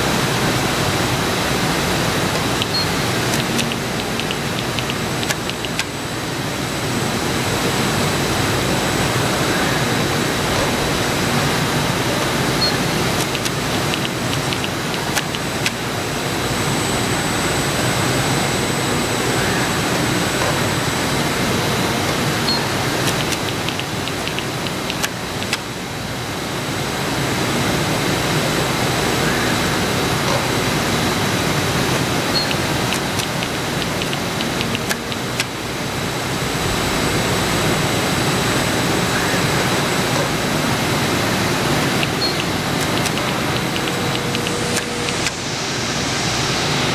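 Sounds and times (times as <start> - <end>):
faint high whine: 0.0 - 46.9
faint clicks: 42.0 - 45.4.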